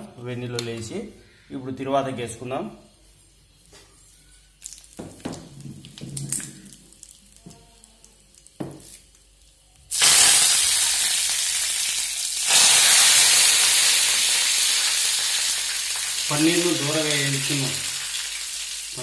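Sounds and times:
food sizzling in hot oil: 9.9s - 19.0s.

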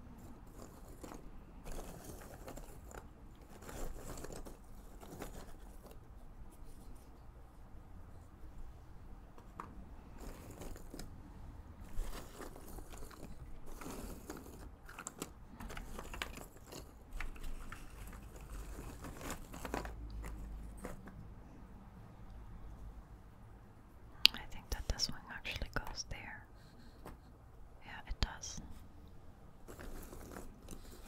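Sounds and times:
puzzle pieces rustling and clicking: 0.2s - 6.0s, 9.6s - 11.1s, 11.8s - 21.1s, 29.6s - 31.0s.

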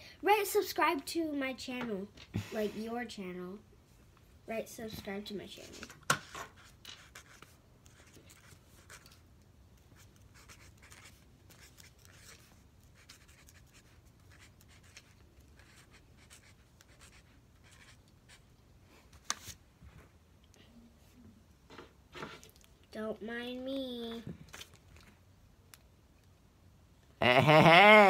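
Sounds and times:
pen scratching on paper: 5.7s - 9.1s, 10.0s - 18.4s.

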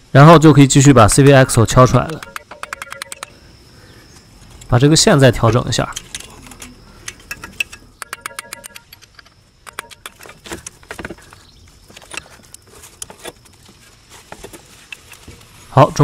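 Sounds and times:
rapid metal clicks: 5.9s - 11.0s.

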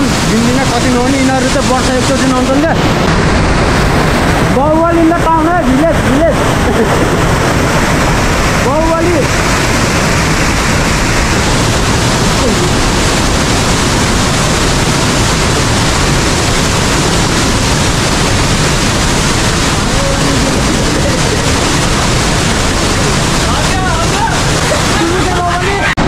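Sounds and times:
waterfall rushing: 0.0s - 26.0s.

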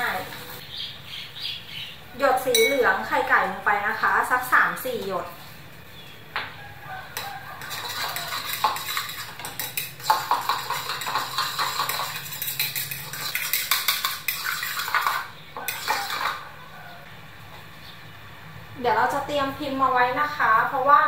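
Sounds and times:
fork beating eggs in a bowl: 7.2s - 16.5s.

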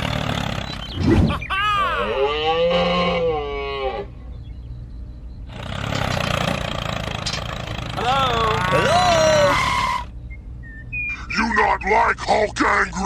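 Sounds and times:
tractor engine running: 0.0s - 1.5s, 4.3s - 11.8s
drawn-out animal call: 0.0s - 4.5s, 5.3s - 10.2s
low hum: 0.0s - 13.0s.

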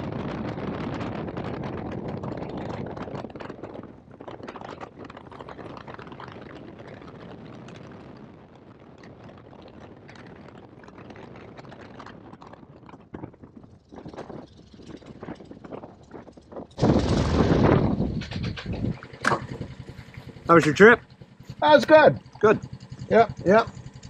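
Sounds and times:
biplane engine idling: 13.8s - 24.0s.

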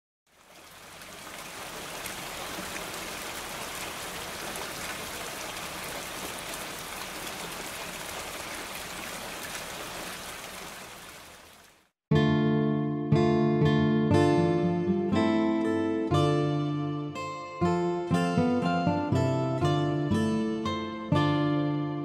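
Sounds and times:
steady rain: 0.3s - 11.9s
acoustic guitar chord strummed: 12.1s - 22.0s.

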